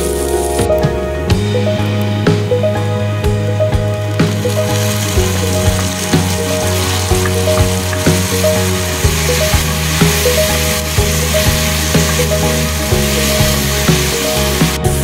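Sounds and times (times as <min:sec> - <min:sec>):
background music: 0:00.0 - 0:15.0
vegetables sizzling in oil: 0:03.8 - 0:15.0
spatula scraping pan: 0:04.3 - 0:15.0.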